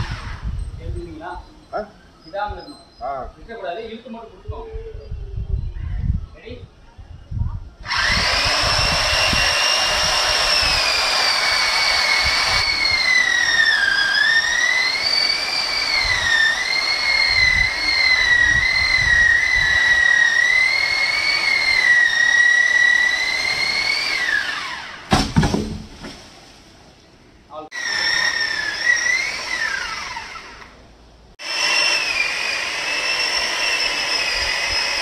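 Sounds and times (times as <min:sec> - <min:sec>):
chainsaw cutting wood: 0:07.8 - 0:26.3, 0:27.7 - 0:30.8, 0:31.4 - 0:35.0
knocks: 0:25.1 - 0:26.3.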